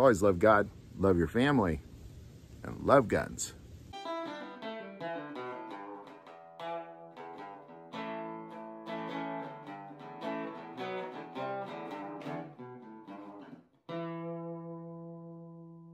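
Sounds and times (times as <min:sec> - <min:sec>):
acoustic guitar picking chords: 0:03.9 - 0:15.9.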